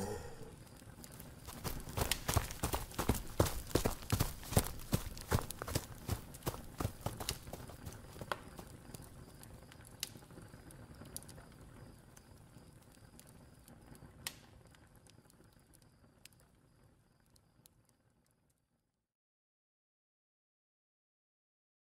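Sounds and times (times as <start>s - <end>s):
low rumbling haze: 0.0s - 0.9s.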